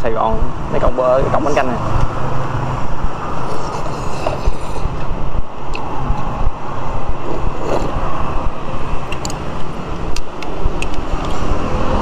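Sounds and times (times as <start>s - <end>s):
street traffic: 0.0s - 12.0s.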